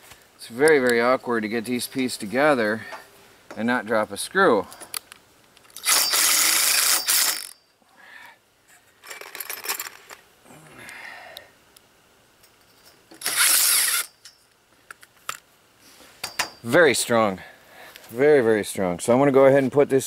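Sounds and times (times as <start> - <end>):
cordless drill driving screws: 5.8 - 7.6, 13.2 - 14.1.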